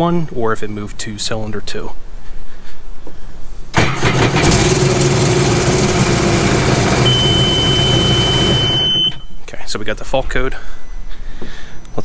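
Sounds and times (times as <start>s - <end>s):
watercraft engine idling: 3.8s - 8.9s
high warning beep: 6.6s - 9.4s.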